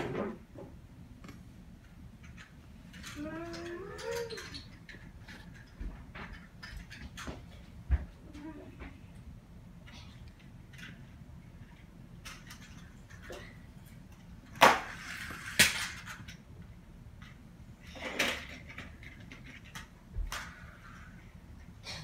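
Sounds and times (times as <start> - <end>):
toy cars clattering on plastic: 2.2 - 7.4, 9.9 - 16.5, 17.2 - 21.2.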